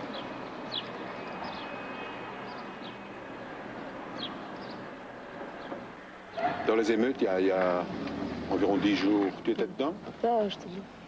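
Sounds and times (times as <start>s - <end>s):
small birds chirping: 0.0s - 6.5s
city background hiss: 0.0s - 11.0s.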